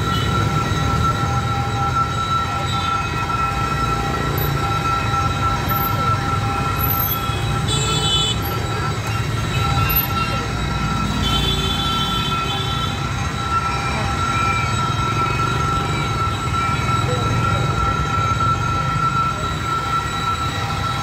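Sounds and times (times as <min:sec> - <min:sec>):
steady high-pitched tone: 0:00.0 - 0:21.0.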